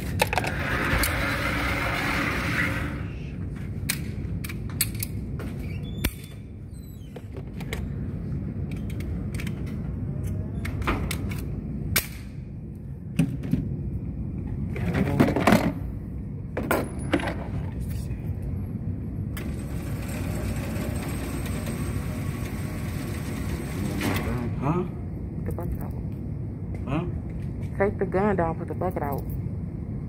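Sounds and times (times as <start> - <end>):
steady low rumble: 7.5 - 20.5, 21.8 - 30.0.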